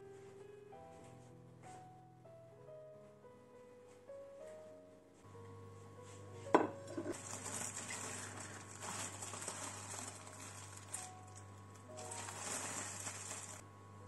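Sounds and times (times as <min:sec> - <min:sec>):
rustling and handling noise: 0:05.8 - 0:13.6.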